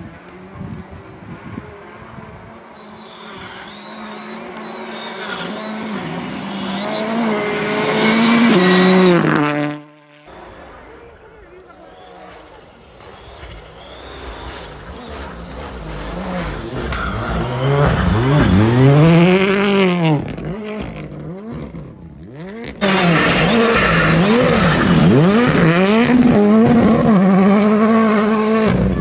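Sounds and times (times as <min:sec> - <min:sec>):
rally car engine revving: 0:00.0 - 0:10.9, 0:11.7 - 0:29.0.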